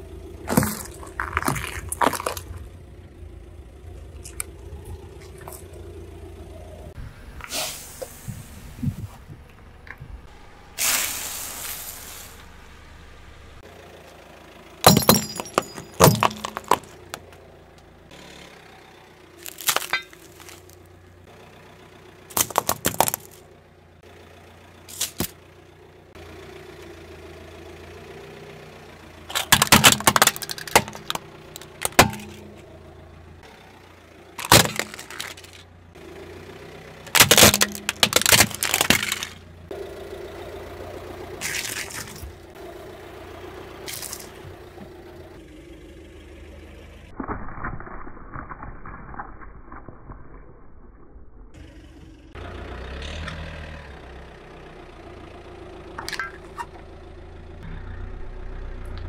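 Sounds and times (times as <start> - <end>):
low engine hum: 0.0 - 47.2, 51.0 - 59.0
tyre crushing brittle objects: 0.4 - 2.7, 14.8 - 17.3, 19.4 - 20.8, 22.3 - 23.5, 24.9 - 25.4, 29.3 - 32.7, 34.4 - 35.7, 37.1 - 39.5, 41.4 - 42.4, 43.9 - 44.4.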